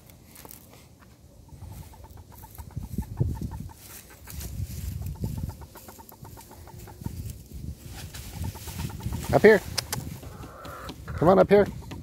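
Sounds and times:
hen clucking: 0:01.0 - 0:12.0
dry leaves rustling: 0:01.7 - 0:10.9.

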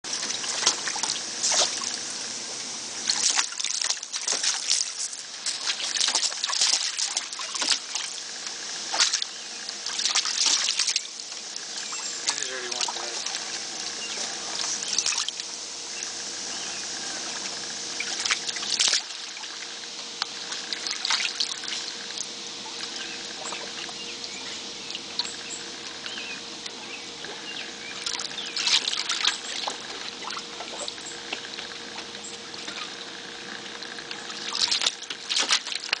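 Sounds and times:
water trickling and lapping: 0:00.0 - 0:36.0
dog splashing in water: 0:00.1 - 0:02.0, 0:03.0 - 0:08.1, 0:08.9 - 0:09.3, 0:09.9 - 0:11.1, 0:34.4 - 0:36.0.

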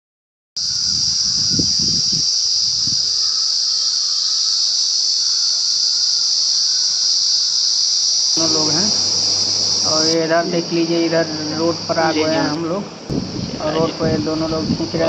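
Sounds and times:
insects buzzing: 0:00.6 - 0:15.0
low thuds: 0:13.1 - 0:13.6.

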